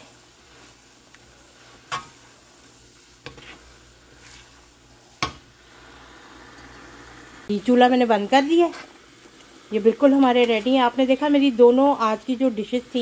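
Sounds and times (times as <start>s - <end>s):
metal spoon stirring beans: 0.0s - 5.6s
sauce sizzling: 0.0s - 13.0s.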